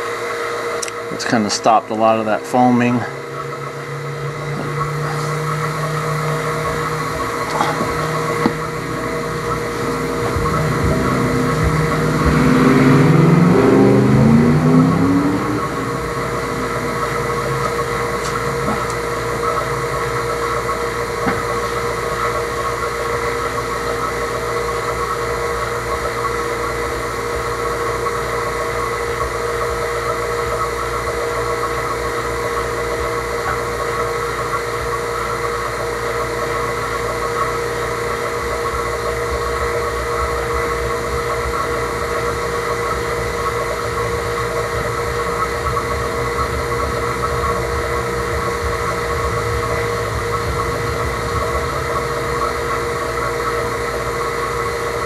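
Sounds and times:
vacuum pump humming: 0.0s - 55.0s.

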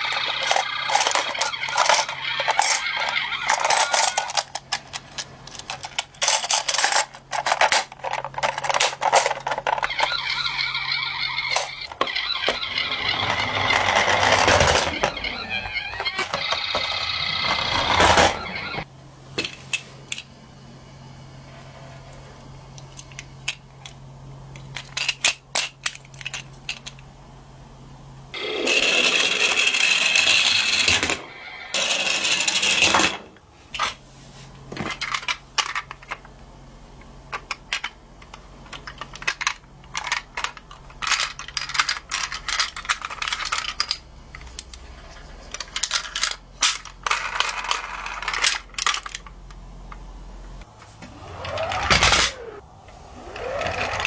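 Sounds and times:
toy car rolling down wooden ramp: 0.0s - 4.6s, 8.4s - 18.8s, 28.4s - 33.2s, 53.2s - 54.0s
toy cars clicking and clinking: 0.0s - 18.8s, 24.7s - 27.0s, 34.9s - 36.3s, 37.3s - 49.4s, 53.2s - 54.0s
toy cars scraping in a box: 10.0s - 16.0s, 53.2s - 54.0s.

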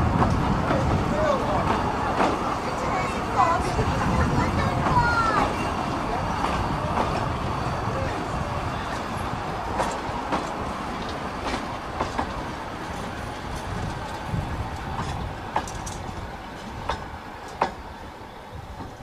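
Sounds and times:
train wheels rumbling on track: 0.0s - 19.0s
wheels clicking over rail joints: 8.8s - 19.0s.

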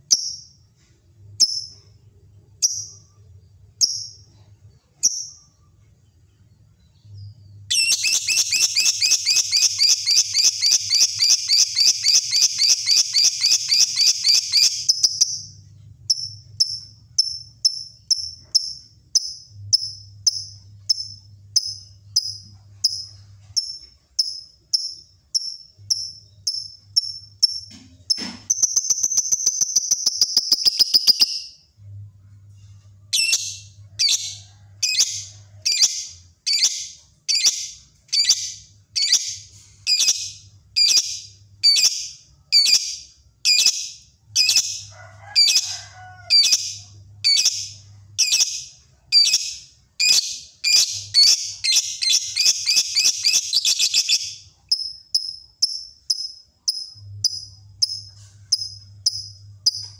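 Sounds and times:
bird trilling and chirping: 7.2s - 15.5s, 16.1s - 31.6s, 33.2s - 45.6s, 46.3s - 59.9s.

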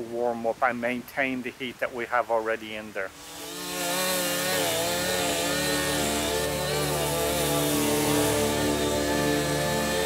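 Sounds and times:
chainsaw engine running: 3.1s - 10.0s.

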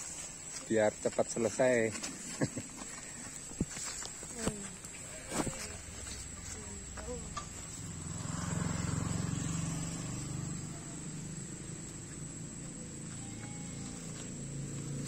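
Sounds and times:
vehicle engine running: 3.2s - 15.0s.

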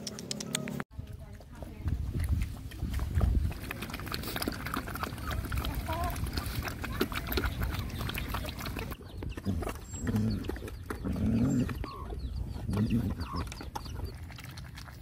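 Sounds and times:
dogs lapping and chewing food: 0.0s - 15.0s
hen clucking: 4.3s - 14.2s.

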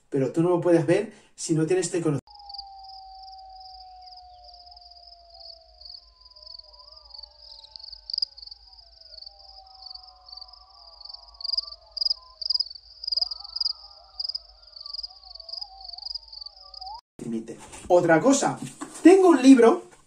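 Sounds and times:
crickets chirping: 2.3s - 17.0s.

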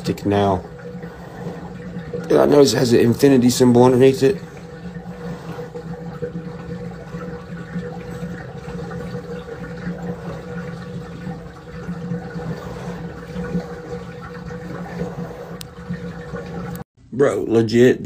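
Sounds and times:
water running into tub: 0.0s - 16.9s.

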